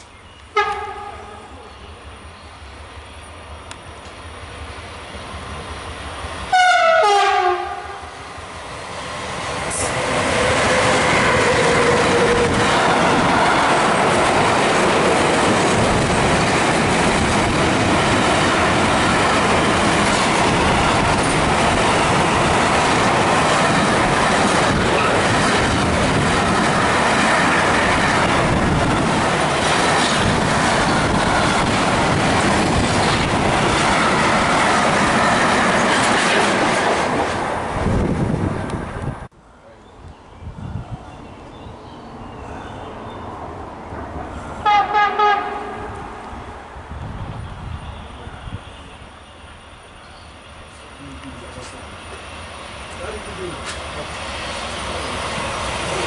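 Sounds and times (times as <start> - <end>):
freight train wheels rumbling: 0.0 - 39.4, 40.0 - 56.0
locomotive horn blast: 0.5 - 1.6, 6.5 - 8.2, 44.6 - 46.0.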